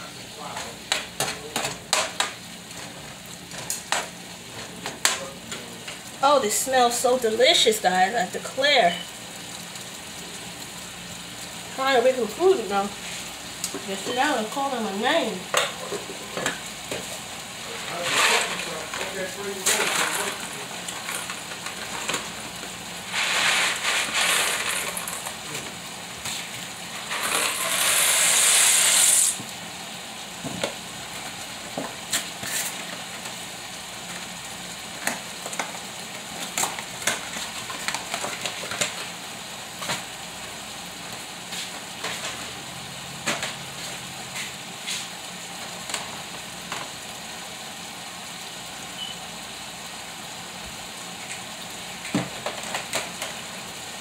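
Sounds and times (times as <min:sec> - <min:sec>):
meat sizzling in a skillet: 0:00.0 - 0:54.0
rustling noise bursts: 0:23.0 - 0:25.5.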